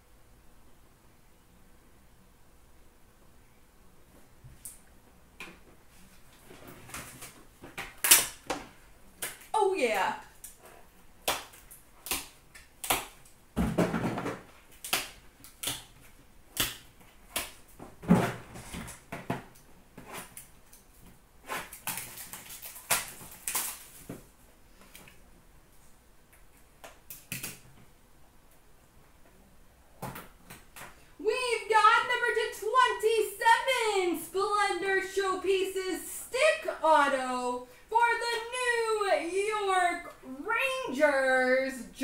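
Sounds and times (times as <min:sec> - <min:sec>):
cardboard and wrapper rustling: 0:21.5 - 0:24.3.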